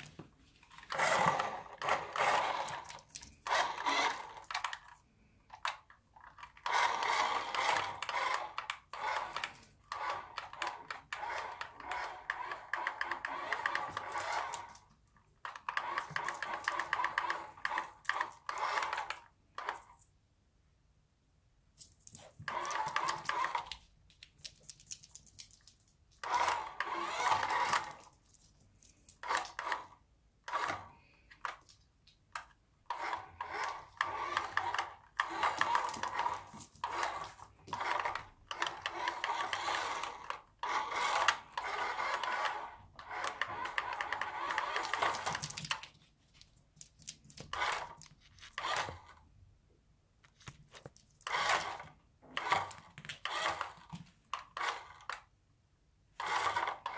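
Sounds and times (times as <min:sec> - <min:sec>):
wheels rolling on wooden floor: 0:00.0 - 0:05.0, 0:06.2 - 0:19.9, 0:22.2 - 0:23.8, 0:26.2 - 0:31.7, 0:32.9 - 0:45.8, 0:50.8 - 0:55.3
toy car motor whirring: 0:00.7 - 0:20.0, 0:22.1 - 0:23.8, 0:26.2 - 0:31.7, 0:32.4 - 0:45.8, 0:47.1 - 0:49.2, 0:51.2 - 0:55.3, 0:56.1 - 0:56.9.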